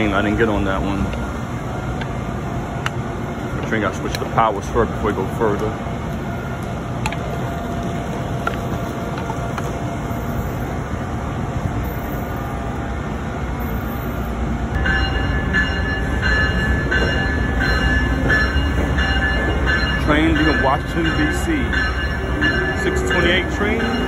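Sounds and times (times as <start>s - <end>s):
electric locomotive rumble and hiss: 0.0s - 24.0s
repeating high ringing tone: 13.6s - 24.0s.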